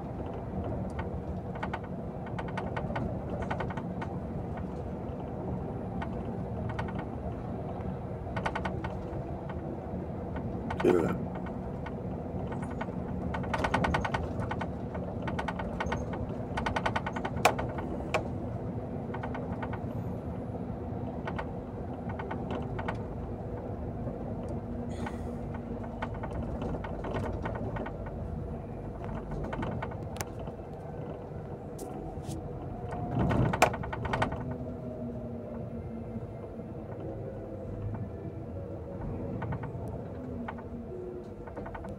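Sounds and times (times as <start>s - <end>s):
vehicle engine drone: 0.0s - 41.9s.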